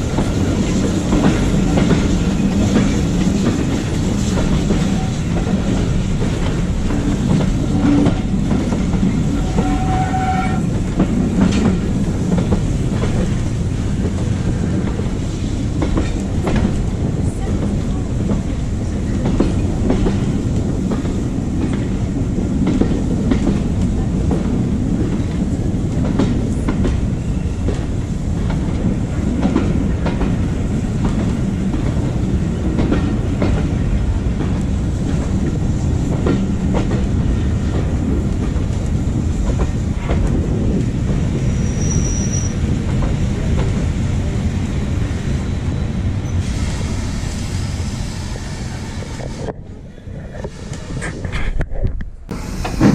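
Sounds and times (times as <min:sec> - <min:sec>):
train carriage rumbling: 0:00.0 - 0:52.9
wheel squeal: 0:09.4 - 0:10.7, 0:41.5 - 0:42.6.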